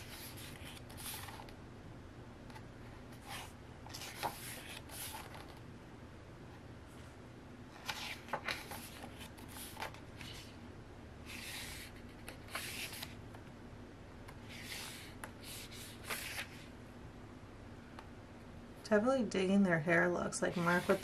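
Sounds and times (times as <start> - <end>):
book pages turning: 0.0 - 1.6, 2.5 - 5.6, 7.7 - 10.6, 11.3 - 13.4, 14.3 - 16.7.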